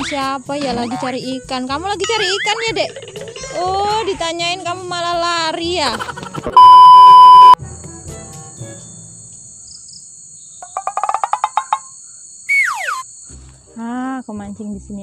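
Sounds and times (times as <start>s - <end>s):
crickets droning: 0.0s - 6.8s, 7.5s - 15.0s
test-tone beep: 6.6s - 7.6s
falling whistle-like glide: 12.5s - 13.0s.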